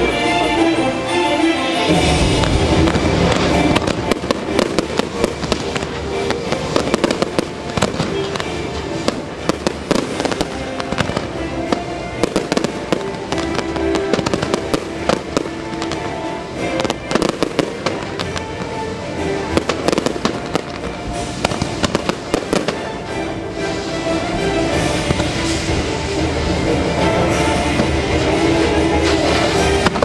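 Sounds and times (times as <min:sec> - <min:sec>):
music playing: 0:00.0 - 0:30.0
fireworks banging and crackling: 0:01.8 - 0:30.0.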